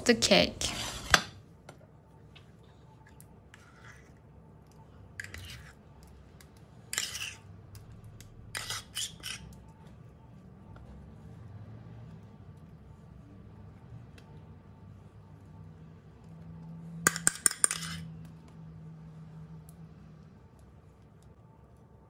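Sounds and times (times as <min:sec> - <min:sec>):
metal spoon scraping ceramic bowl: 0:00.2 - 0:01.4, 0:03.0 - 0:04.2, 0:05.2 - 0:07.6, 0:08.5 - 0:09.6, 0:17.1 - 0:18.1.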